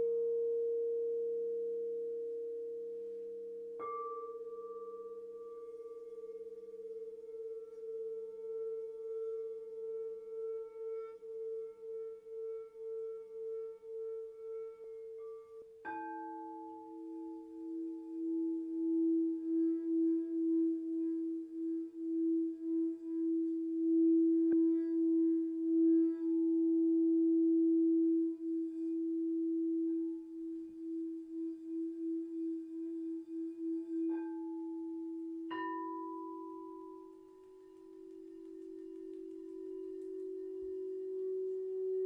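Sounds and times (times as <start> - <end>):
singing bowls struck: 35.5 - 38.6.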